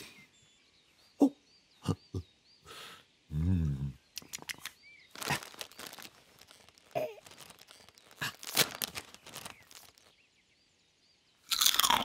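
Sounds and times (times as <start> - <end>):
crisp packet crinkling: 4.2 - 10.2, 11.5 - 12.0.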